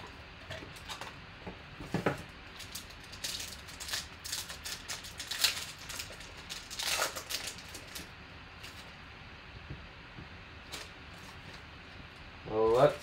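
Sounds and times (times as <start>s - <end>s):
foil wrapper crinkling and tearing: 2.5s - 8.8s.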